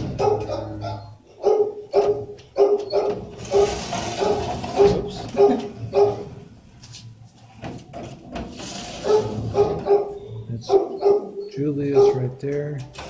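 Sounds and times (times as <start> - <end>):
dog barking: 0.1 - 6.3, 9.0 - 12.2.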